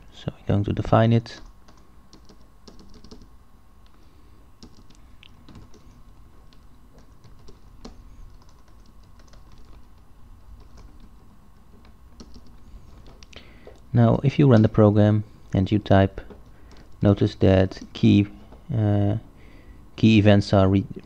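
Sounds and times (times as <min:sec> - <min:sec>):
typing on computer keyboard: 0:01.4 - 0:03.3, 0:04.6 - 0:13.8.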